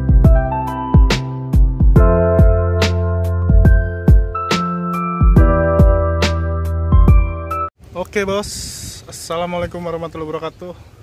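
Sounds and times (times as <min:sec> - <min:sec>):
steady drum beat: 0:00.0 - 0:07.5
held music chords: 0:00.0 - 0:07.7.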